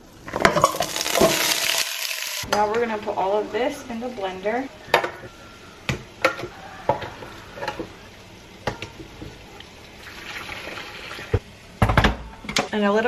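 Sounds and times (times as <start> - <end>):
liquid pouring and splashing: 9.8 - 11.4.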